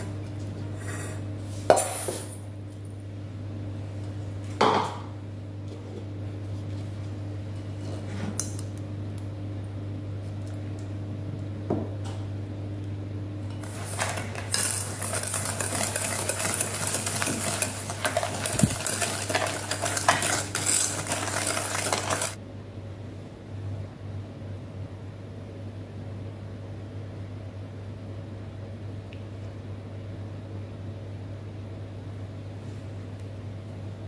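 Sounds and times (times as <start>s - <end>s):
whisk beating in metal bowl: 13.6s - 22.4s.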